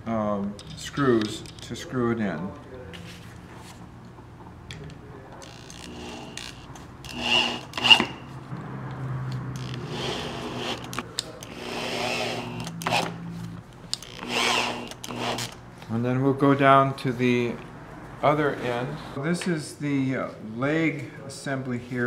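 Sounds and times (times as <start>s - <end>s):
screws being driven into wood: 5.4s - 8.2s, 9.6s - 13.1s, 13.9s - 15.6s.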